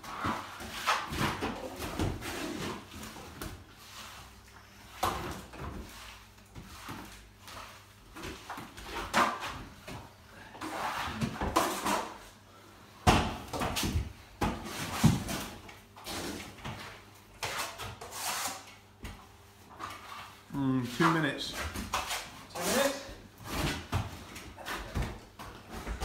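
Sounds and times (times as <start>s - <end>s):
trowel scraping plaster on wall: 10.6s - 12.2s, 14.6s - 18.8s, 21.5s - 23.8s.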